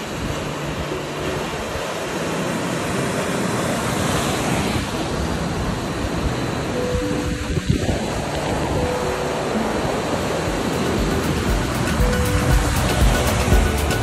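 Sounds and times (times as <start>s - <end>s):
waves breaking: 0.0s - 14.0s
wind on microphone: 3.4s - 14.0s.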